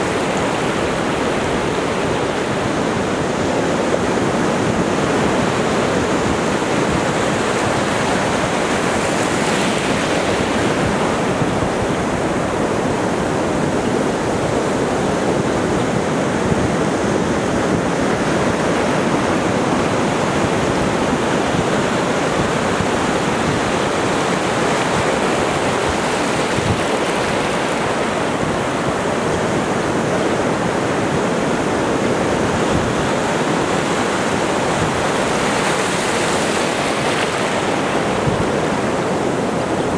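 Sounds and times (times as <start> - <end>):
ocean waves breaking on sand: 0.0 - 39.9.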